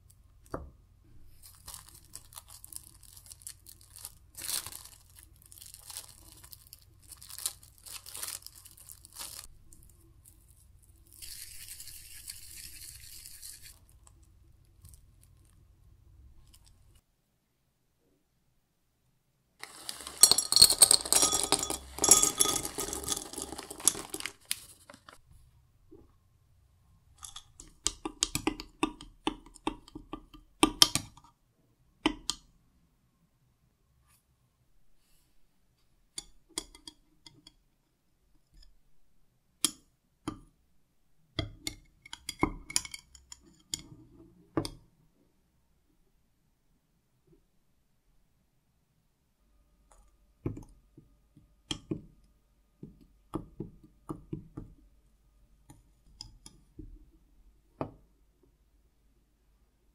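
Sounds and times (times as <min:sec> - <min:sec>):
scraping and rustling handling: 0:01.2 - 0:10.8, 0:19.6 - 0:25.2
metal utensils clinking on glass: 0:19.6 - 0:24.3.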